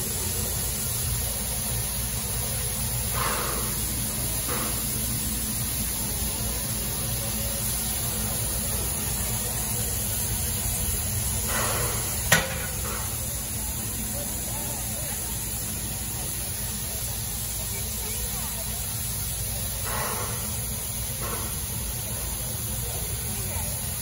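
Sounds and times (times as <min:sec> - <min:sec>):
steam locomotive hissing: 0:00.0 - 0:24.0
sharp metallic clank: 0:11.5 - 0:13.2.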